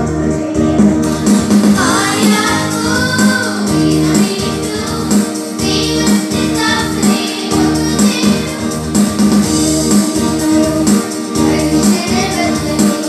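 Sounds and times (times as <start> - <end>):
electronic keyboard with bass pulse: 0.0 - 13.0
children singing into a microphone: 1.8 - 8.8, 9.7 - 13.0.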